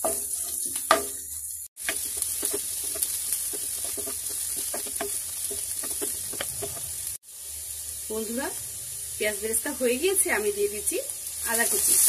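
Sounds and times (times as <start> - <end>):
onions sizzling in hot oil: 0.0 - 12.0
wooden spatula scraping pan: 1.8 - 7.0.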